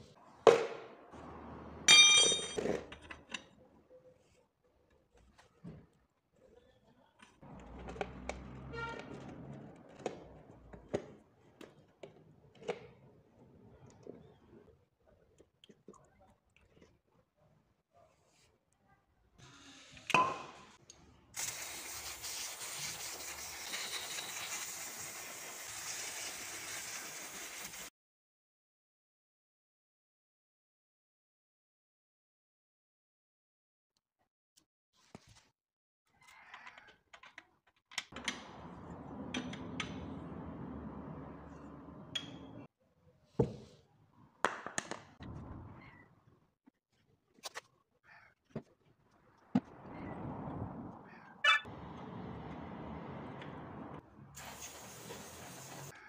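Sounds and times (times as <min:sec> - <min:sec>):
metal hand tool clinking: 0:01.9 - 0:02.8.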